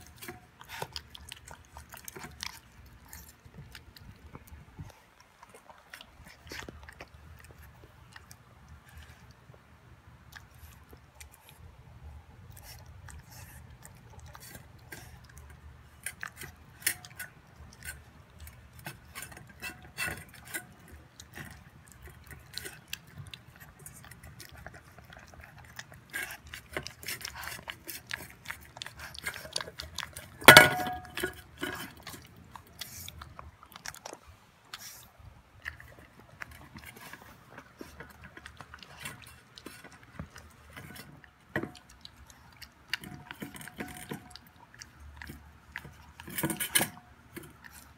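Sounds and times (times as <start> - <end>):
puppy chewing food: 0.0 - 47.9
steel bowl clanging: 30.4 - 31.8.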